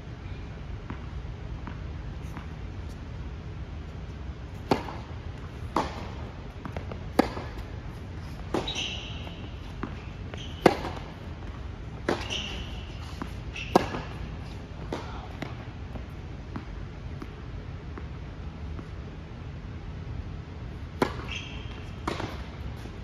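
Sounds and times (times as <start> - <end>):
tennis ball bouncing: 0.8 - 3.0, 3.9 - 18.9, 20.8 - 22.9
shoes squeaking on court: 4.5 - 16.1, 20.9 - 23.0
racket striking tennis ball: 4.6 - 17.3, 20.9 - 22.9.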